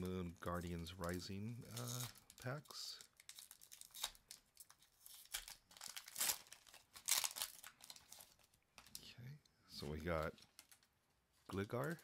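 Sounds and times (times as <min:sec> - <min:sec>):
foil wrapper tearing and crinkling: 0:01.0 - 0:09.0.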